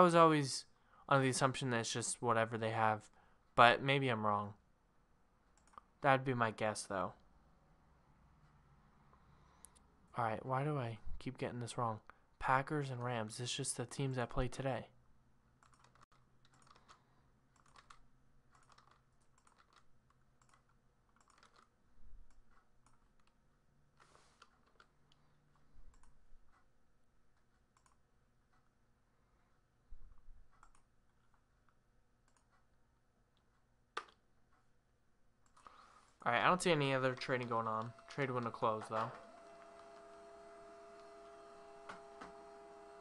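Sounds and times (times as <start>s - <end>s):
keyboard typing: 5.5s - 5.9s, 15.6s - 23.4s, 24.0s - 26.6s, 27.7s - 28.0s, 30.5s - 30.9s, 35.4s - 43.0s.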